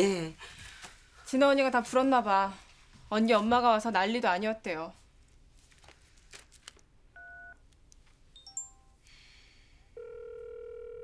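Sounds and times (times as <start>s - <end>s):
phone ringing tone: 7.2s - 7.6s, 10.0s - 11.0s.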